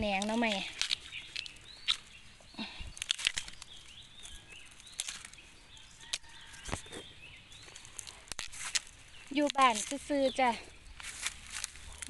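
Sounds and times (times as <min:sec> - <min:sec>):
faint bird chirps: 0:00.0 - 0:08.2
bamboo shoots snapping: 0:00.0 - 0:12.0
dry leaves rustling: 0:00.0 - 0:12.0.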